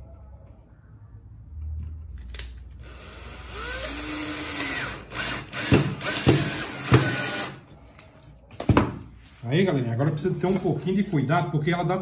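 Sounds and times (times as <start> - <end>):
cordless drill driving screw: 2.8 - 7.6.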